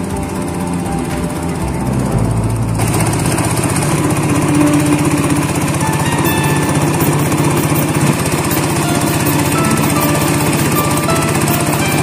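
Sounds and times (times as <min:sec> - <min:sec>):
boat engine chugging: 0:00.0 - 0:12.0
water rushing along hull: 0:02.8 - 0:12.0.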